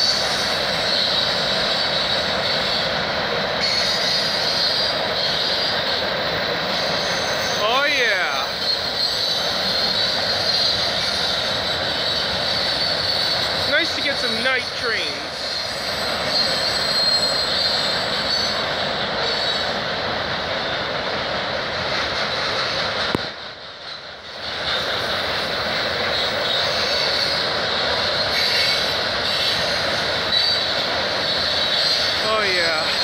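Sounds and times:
high wheel squeal: 0:00.0 - 0:19.9, 0:23.9 - 0:33.0
steel wheels on rail: 0:00.0 - 0:33.0.

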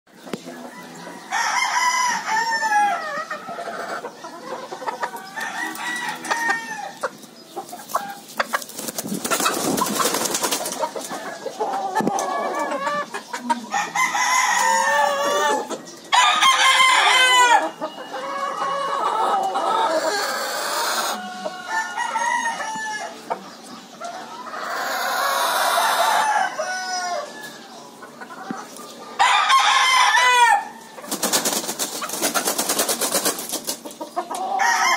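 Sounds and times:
chickens clucking and cackling: 0:00.1 - 0:34.9
rooster crowing: 0:00.8 - 0:03.3, 0:05.3 - 0:07.0, 0:13.7 - 0:23.2, 0:25.4 - 0:27.6, 0:29.2 - 0:30.8, 0:34.5 - 0:34.9.

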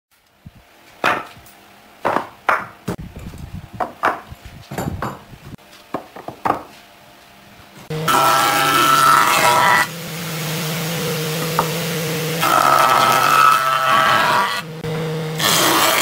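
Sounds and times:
wooden boards knocking: 0:02.0 - 0:02.8
jointer planing board: 0:07.9 - 0:09.9, 0:11.0 - 0:16.0.

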